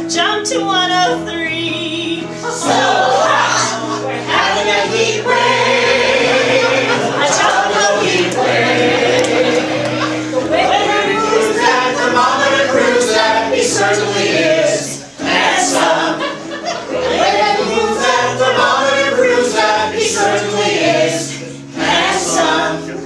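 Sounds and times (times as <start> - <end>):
cast singing in chorus: 2.6 - 23.0.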